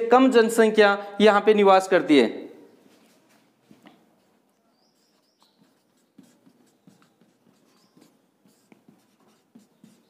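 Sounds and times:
marker pen writing on whiteboard: 3.0s - 10.0s.

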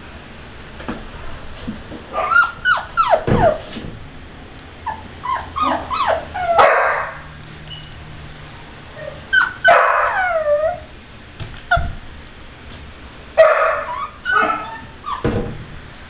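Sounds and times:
puppy yelping and whining: 2.1s - 3.7s, 4.8s - 7.2s, 9.0s - 10.9s, 11.7s - 12.0s, 13.4s - 15.3s
thump: 15.2s - 15.8s.

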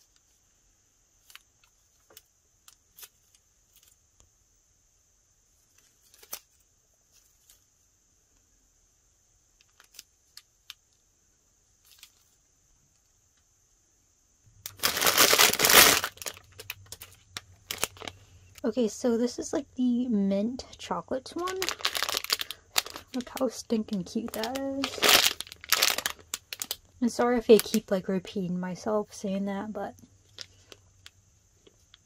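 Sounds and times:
plastic bag crinkling open: 9.6s - 10.8s, 14.6s - 18.6s, 21.3s - 27.8s, 30.2s - 32.0s.

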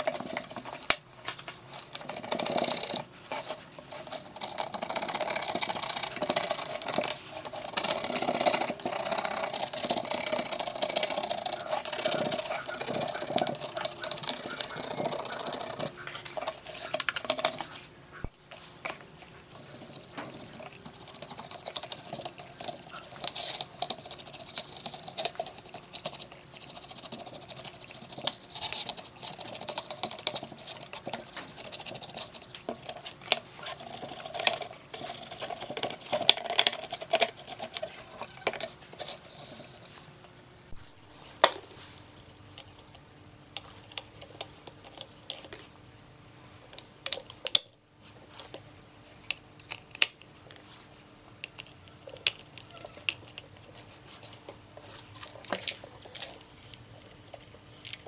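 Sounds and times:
brush scrubbing circuit board: 1.8s - 18.0s, 19.5s - 40.1s.

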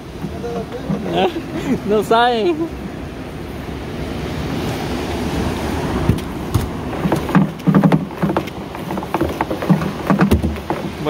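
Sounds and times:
sea noise: 0.0s - 11.0s
wind: 0.0s - 11.0s
knocks and thumps: 6.1s - 11.0s.

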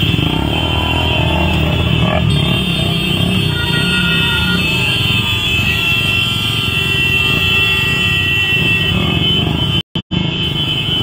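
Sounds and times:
group of motorcycle engines: 0.0s - 11.0s.

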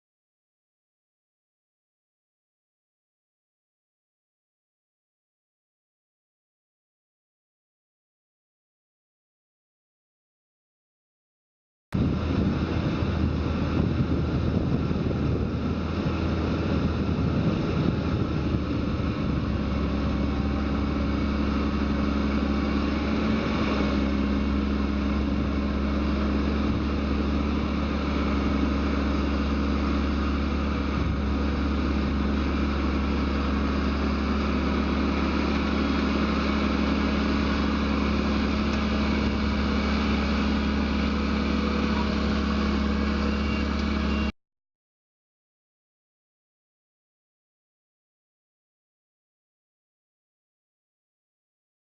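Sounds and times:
tractor diesel engine under load: 12.0s - 44.4s.

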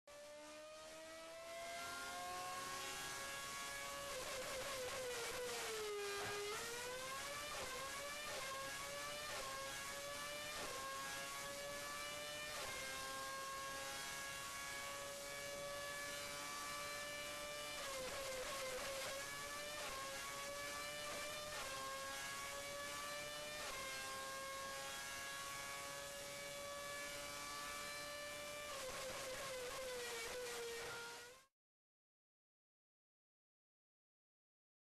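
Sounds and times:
racing engine whining at high revs: 0.1s - 31.5s.

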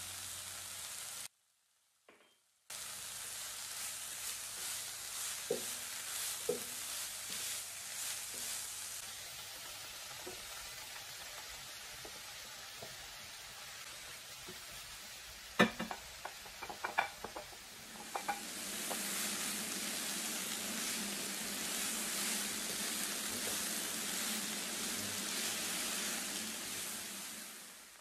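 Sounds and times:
vegetables sizzling in a frying pan: 0.0s - 1.3s, 2.7s - 28.0s
spatula clacking against pan: 15.6s - 19.1s.

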